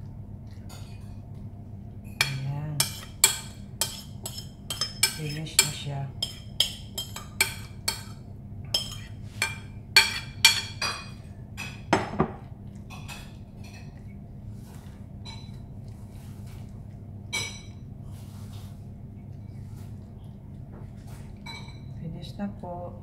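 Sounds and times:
spoon clinking on ceramic dishes: 2.2 - 12.3, 21.4 - 22.0.

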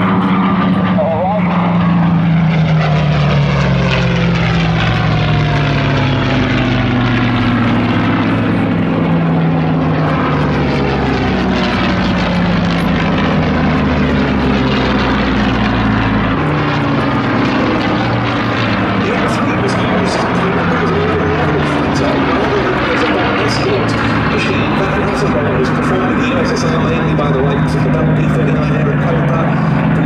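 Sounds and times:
propeller planes flying past overhead: 0.0 - 30.0.

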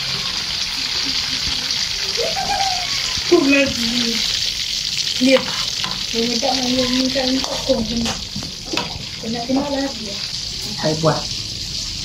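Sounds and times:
oil sizzling in wok: 0.0 - 12.0
spatula stirring in wok: 4.2 - 10.8.

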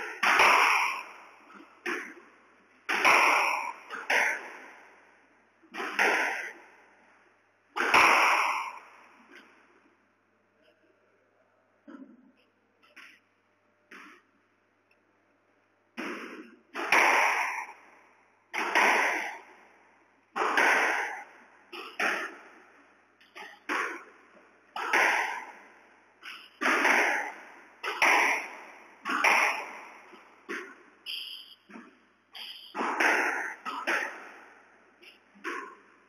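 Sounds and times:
squash ball cracking off rackets: 0.0 - 5.0, 5.7 - 6.8, 7.7 - 9.6, 13.9 - 14.3, 16.0 - 35.9.

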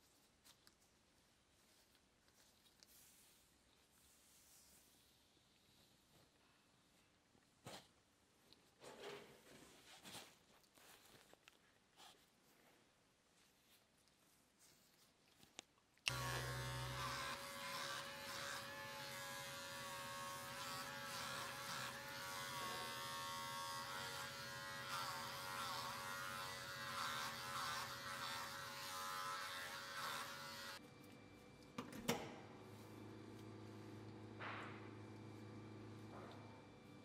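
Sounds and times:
electric clippers buzzing: 16.1 - 30.8.

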